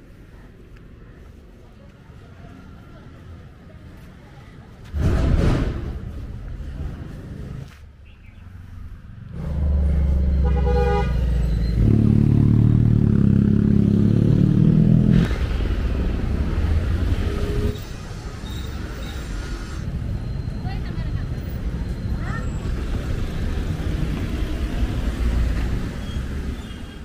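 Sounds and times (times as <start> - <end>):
traffic noise: 0.0 - 27.0
motorcycle engines running: 9.0 - 17.7
vehicle horn honk: 10.4 - 11.4.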